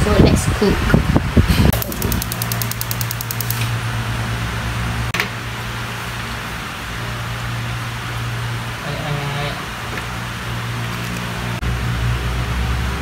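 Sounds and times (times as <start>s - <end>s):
gas igniter ticking: 1.7s - 3.7s.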